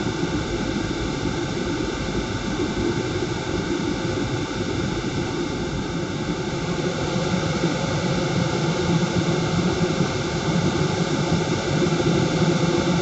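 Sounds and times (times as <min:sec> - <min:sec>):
wind tunnel fan rushing air: 0:05.2 - 0:13.0.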